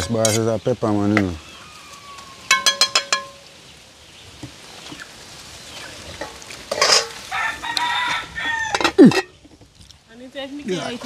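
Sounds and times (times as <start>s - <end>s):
faint steady hiss: 0.0s - 11.0s
rooster crowing: 1.5s - 2.7s, 7.1s - 9.1s.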